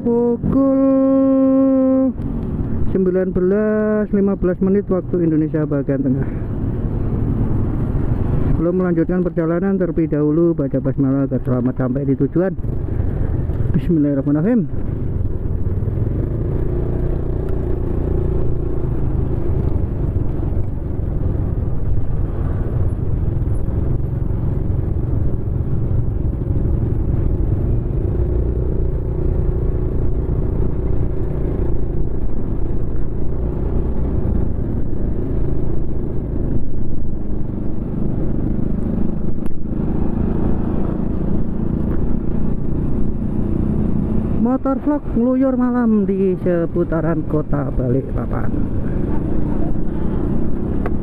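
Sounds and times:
passing motorbikes and cars: 0.0 - 51.0
road noise: 0.0 - 51.0
motorcycle engine running: 11.4 - 51.0.

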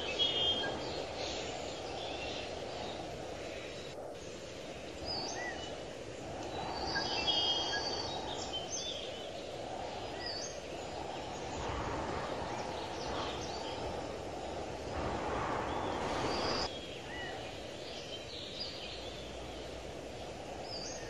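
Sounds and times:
small birds chirping: 0.0 - 21.0
low outdoor rumble: 2.6 - 17.9.

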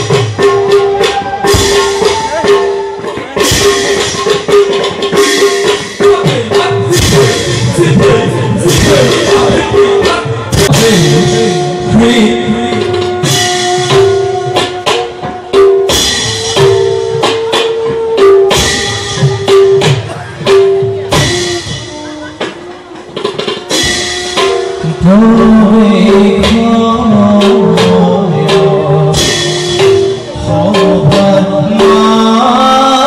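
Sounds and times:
held melody line: 0.0 - 20.0, 20.8 - 33.0
sharp drum strokes: 0.0 - 33.0
person singing: 6.0 - 14.1, 24.8 - 33.0.

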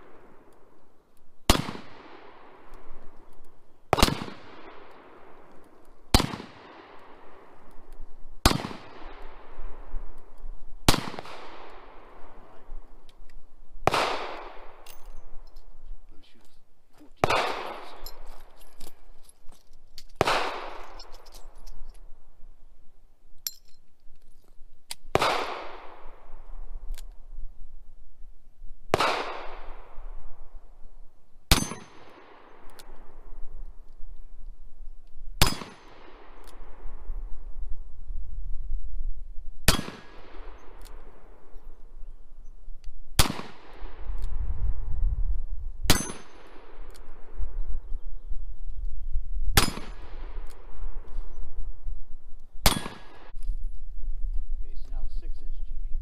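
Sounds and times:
revolver gunshots with echo: 1.5 - 3.0, 3.9 - 7.6, 8.4 - 10.0, 10.8 - 12.8, 13.8 - 14.8, 17.2 - 18.3, 20.2 - 21.2, 25.1 - 26.5, 28.9 - 30.4, 31.5 - 33.4, 35.4 - 37.0, 39.6 - 41.6, 43.1 - 44.1, 45.9 - 47.4, 49.6 - 51.0, 52.6 - 53.3
wind rumble on microphone: 1.7 - 16.6, 17.2 - 56.0.

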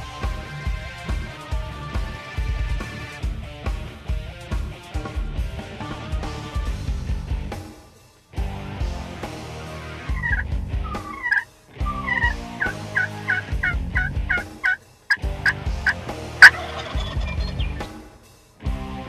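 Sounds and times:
turkeys gobbling: 10.1 - 17.9.

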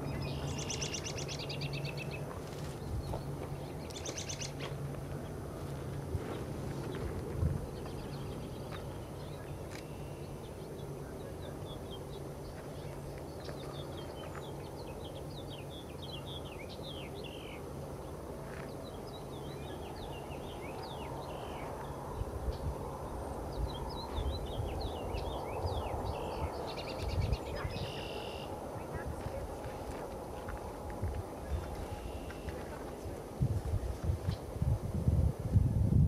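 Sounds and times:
small birds chirping: 0.0 - 5.4, 6.2 - 33.2
jet engines humming: 0.0 - 34.6
wind buffeting on microphone: 5.9 - 9.7, 21.8 - 36.0.

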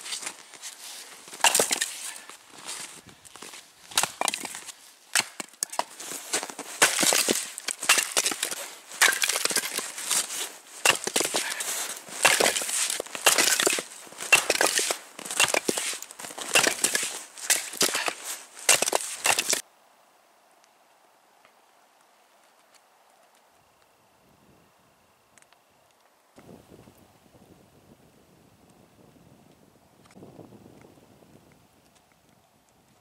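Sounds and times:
axe chopping wood: 1.4 - 1.9, 3.9 - 6.0, 6.8 - 10.2, 10.8 - 19.6
wood cracking apart: 3.3 - 19.6.

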